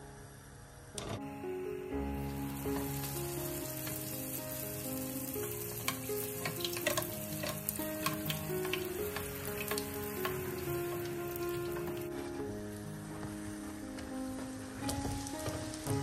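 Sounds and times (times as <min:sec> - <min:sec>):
soft background music: 0:00.0 - 0:16.0
dough sizzling in hot oil: 0:02.1 - 0:12.3, 0:14.8 - 0:16.0.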